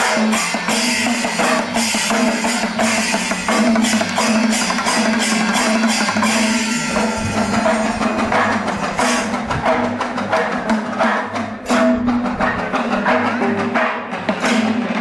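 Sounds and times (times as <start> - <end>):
fast temple drumming: 0.0 - 15.0
steady held note: 0.3 - 9.4.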